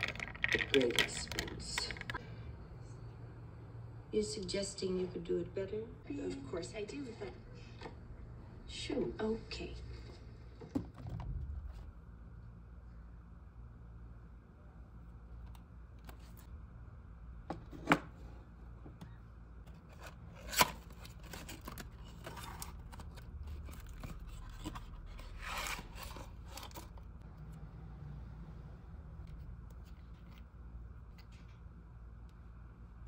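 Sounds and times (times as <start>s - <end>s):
cardboard and plastic rustling: 19.7s - 27.2s.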